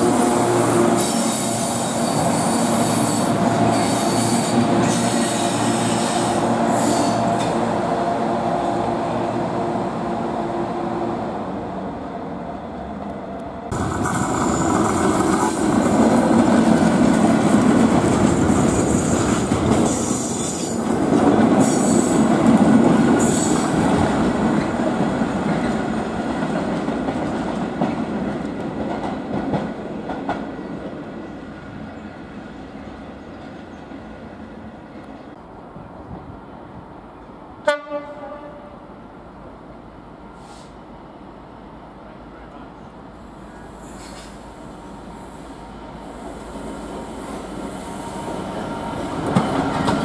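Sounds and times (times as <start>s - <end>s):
train wheels rattling and squealing: 0.9s - 7.6s, 13.8s - 24.8s, 43.2s - 50.0s.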